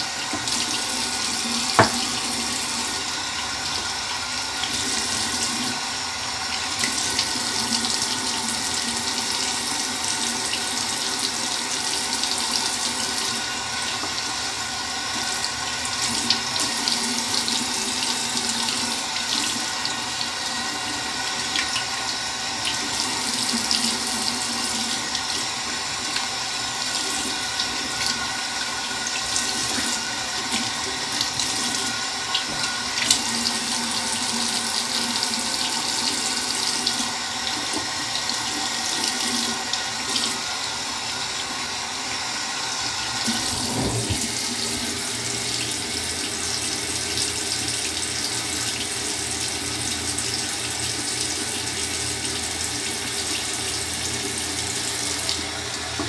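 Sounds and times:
tap running into sink: 0:00.0 - 0:03.1, 0:12.3 - 0:14.4, 0:29.3 - 0:33.7, 0:43.2 - 0:48.8.

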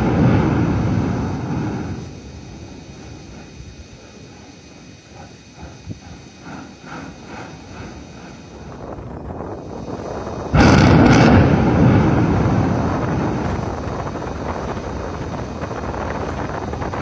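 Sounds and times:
volcanic eruption boom: 0:00.0 - 0:03.4, 0:07.2 - 0:17.0
long rumble: 0:00.0 - 0:17.0.

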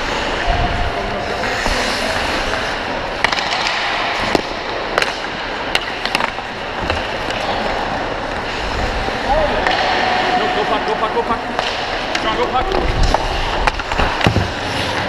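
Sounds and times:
skates scraping on ice: 0:00.0 - 0:15.0
hockey sticks and puck clacking: 0:01.2 - 0:15.0.

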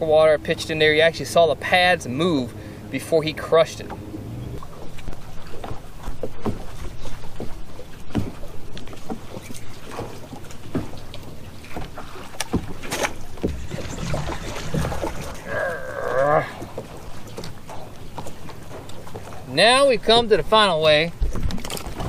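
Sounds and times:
water lapping against boat hull: 0:00.0 - 0:22.0
clicks and knocks of fishing gear: 0:08.1 - 0:13.6, 0:21.2 - 0:22.0.

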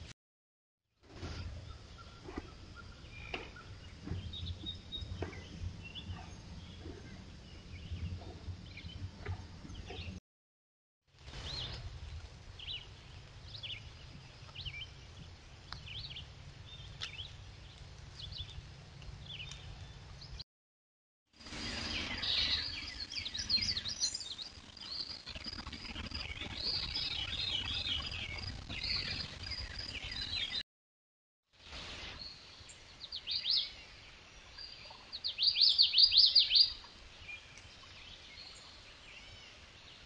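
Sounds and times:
low steady rumble: 0:01.8 - 0:10.2
bird chirps: 0:21.5 - 0:30.6, 0:34.6 - 0:39.4.

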